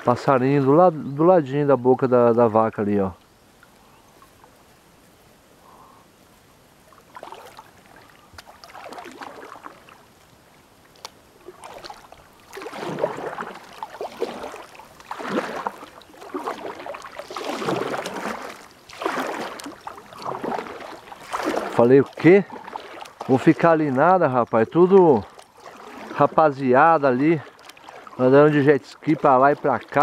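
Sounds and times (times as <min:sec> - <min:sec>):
paddle strokes splashing water: 0:00.0 - 0:06.0, 0:06.6 - 0:30.0.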